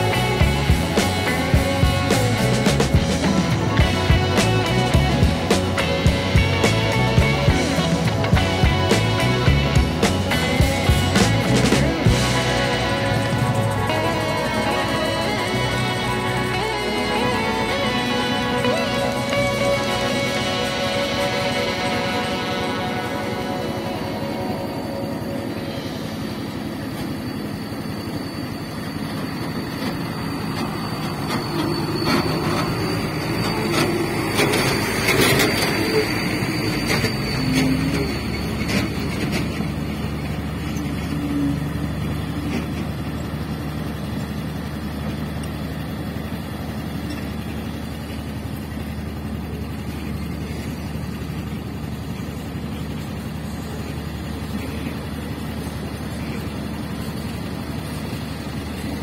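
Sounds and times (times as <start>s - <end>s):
diesel engines running: 0.0s - 59.0s.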